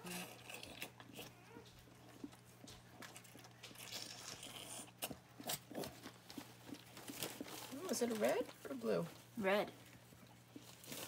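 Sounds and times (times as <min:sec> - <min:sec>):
dog licking and chewing: 0:00.0 - 0:07.7.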